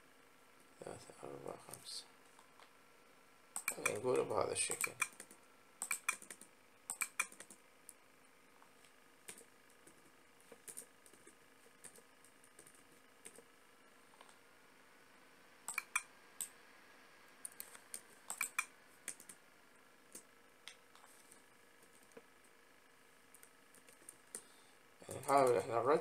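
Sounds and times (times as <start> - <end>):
computer keyboard taps: 4.7 - 7.6.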